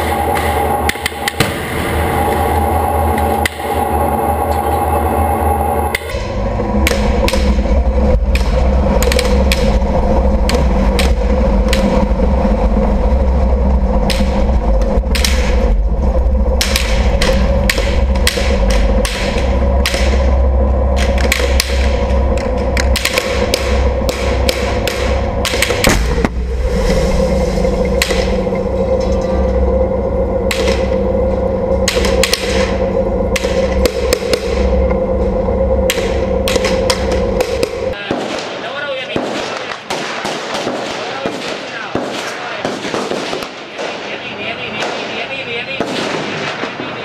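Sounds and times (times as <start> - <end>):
sharp cracks and metallic knocks: 0.0 - 1.8, 5.9 - 12.1, 14.0 - 15.8, 16.5 - 26.4, 30.5 - 31.0, 31.8 - 34.8, 35.8 - 46.9
tank engine deep rumble: 0.0 - 38.0
heavy blasts: 0.0 - 47.0.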